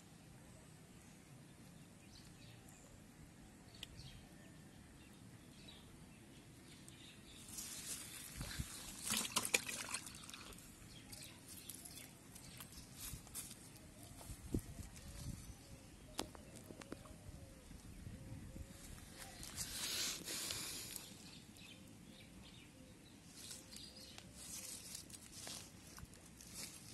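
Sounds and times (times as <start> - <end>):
crackling rustles from handling: 7.4 - 9.3, 11.2 - 15.6, 23.2 - 26.9.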